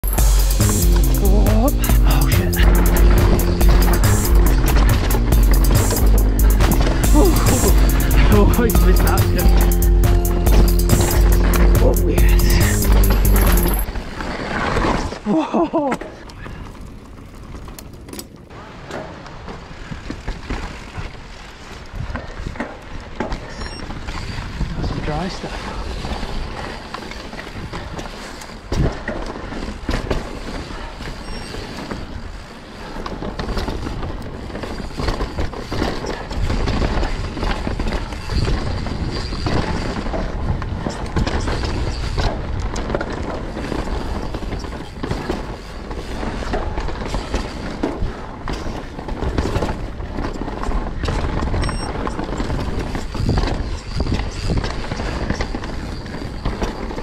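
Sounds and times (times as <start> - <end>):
bike tyres rolling over dirt: 0.0 - 9.8, 10.7 - 57.0
wheels knocking on roots: 0.1 - 15.2
bike chain and frame rattling: 10.7 - 15.1, 23.9 - 57.0
wind rumble on microphone: 33.1 - 57.0.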